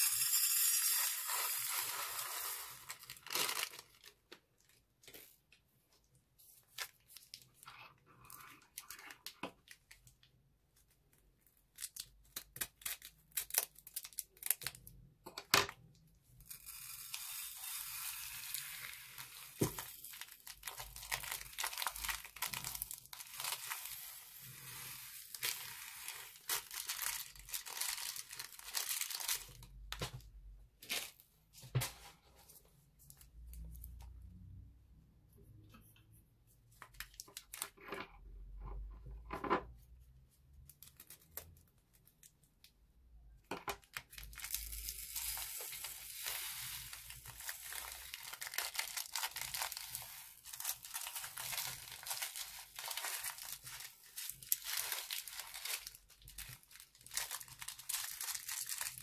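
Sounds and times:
beads rattling in glass dish: 0:00.0 - 0:03.8
plastic bag crinkling: 0:01.6 - 0:05.1, 0:19.2 - 0:29.9, 0:43.9 - 0:59.0.

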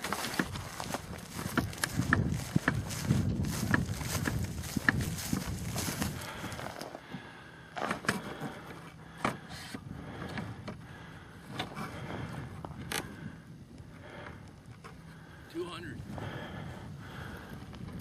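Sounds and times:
footsteps in dry grass: 0:00.0 - 0:07.1.

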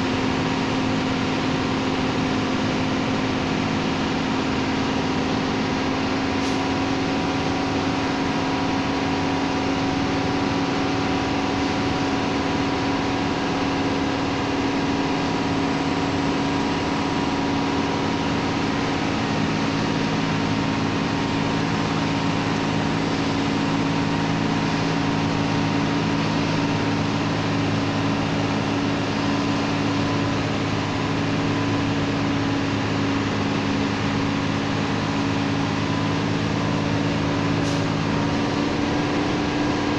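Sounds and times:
diesel truck engine droning: 0:00.0 - 0:39.9.

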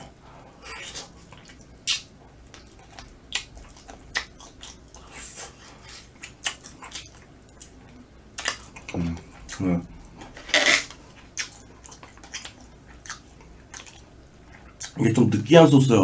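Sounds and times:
person chewing: 0:00.6 - 0:15.0
sharp mouth clicks: 0:00.8 - 0:07.8.

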